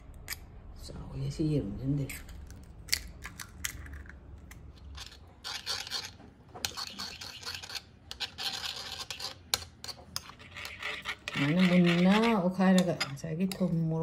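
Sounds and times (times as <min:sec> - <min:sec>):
eggshell cracking: 0:02.2 - 0:05.1
spoon beating eggs in bowl: 0:04.8 - 0:14.0.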